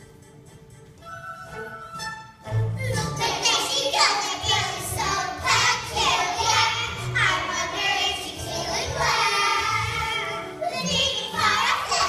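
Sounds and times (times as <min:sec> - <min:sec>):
musical accompaniment: 0:00.0 - 0:12.0
children singing: 0:03.0 - 0:12.0.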